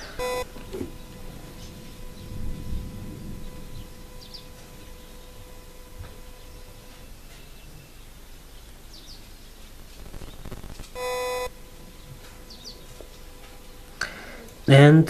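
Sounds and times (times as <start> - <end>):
short electronic beep: 0.0 - 0.6, 11.0 - 11.5
faint high chirps: 0.0 - 14.7
low background hiss: 0.0 - 15.0.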